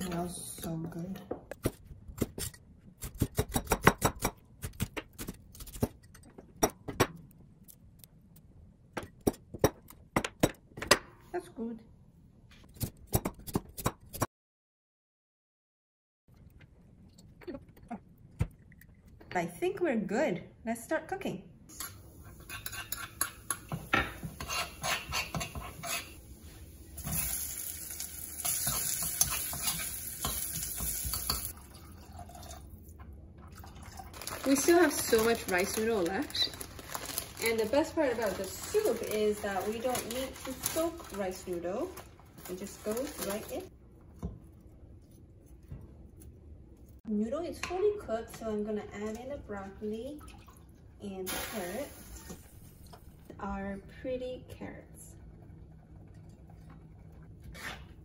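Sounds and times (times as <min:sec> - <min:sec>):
spoon clinking and scraping bowl: 0:21.8 - 0:26.2
onions sizzling in hot oil: 0:25.8 - 0:31.5, 0:51.3 - 0:52.6.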